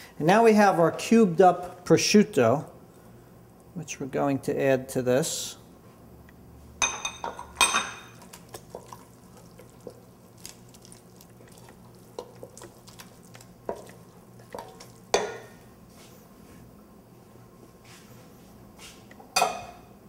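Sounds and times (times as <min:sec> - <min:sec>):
wooden spoon stirring in a pot: 0:08.2 - 0:16.6
cookware knocks and clinks: 0:19.3 - 0:19.9.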